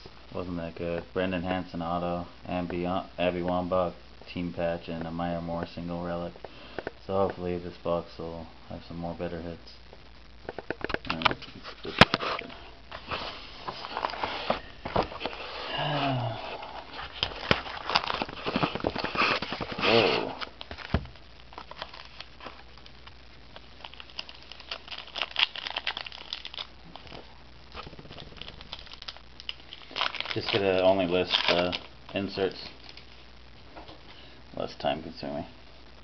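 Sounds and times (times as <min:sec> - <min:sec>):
wrappers crinkling and rustling: 0:10.5 - 0:33.2.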